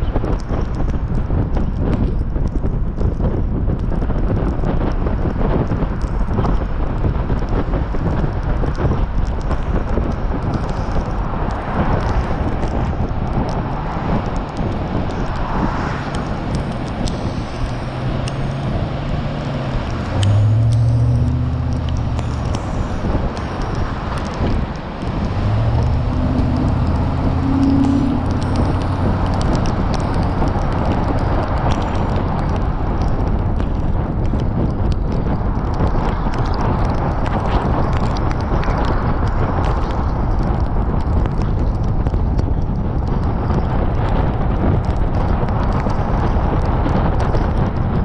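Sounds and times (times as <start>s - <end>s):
low engine hum: 0.0s - 48.0s
tyre noise on wet road: 0.0s - 48.0s
wind buffeting microphone: 0.0s - 48.0s.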